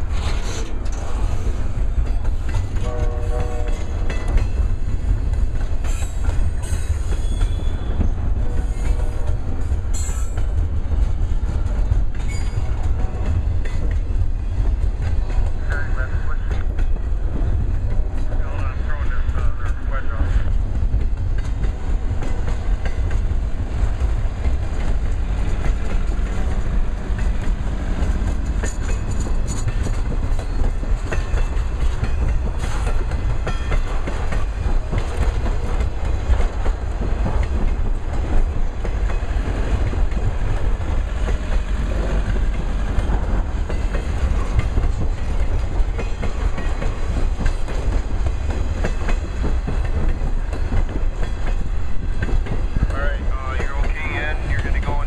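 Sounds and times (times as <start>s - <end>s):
freight train rolling past: 0.0s - 55.0s
wheels clickety-clack: 0.0s - 55.0s.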